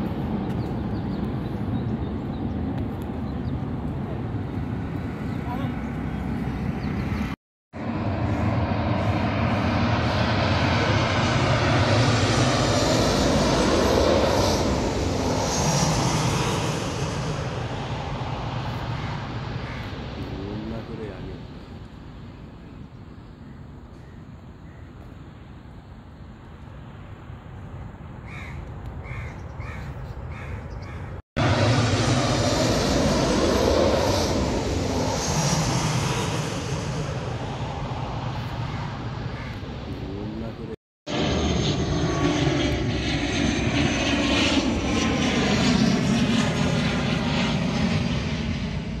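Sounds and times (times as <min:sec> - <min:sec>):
distant jet airliner rumbling: 0:00.0 - 0:25.4, 0:26.8 - 0:49.0
bird calling short and sharp: 0:19.0 - 0:19.9, 0:38.6 - 0:39.6.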